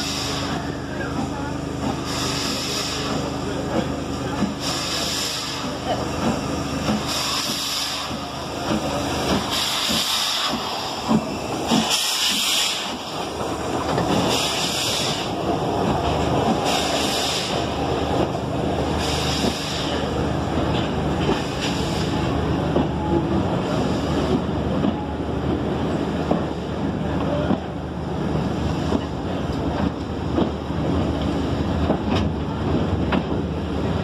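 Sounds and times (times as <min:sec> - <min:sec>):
steam hiss: 0:00.0 - 0:00.8, 0:01.9 - 0:03.4, 0:04.3 - 0:15.6, 0:16.2 - 0:20.2, 0:21.2 - 0:22.3
train wheels rumbling and knocking: 0:00.0 - 0:34.0.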